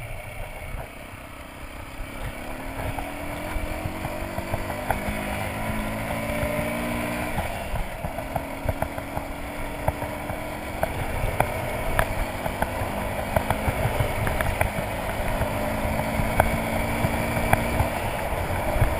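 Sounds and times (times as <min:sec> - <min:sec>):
gravel clicks and bike rattling: 0:00.0 - 0:18.9
motorcycle engine running: 0:00.0 - 0:18.9.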